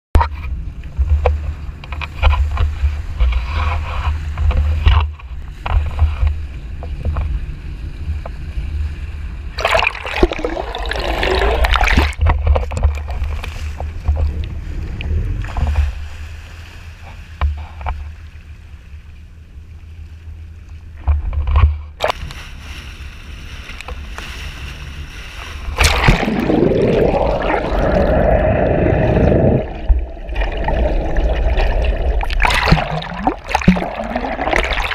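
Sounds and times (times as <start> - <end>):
wind rumbling on microphone: 0.2 - 34.9
water sloshing and splashing: 9.5 - 34.9.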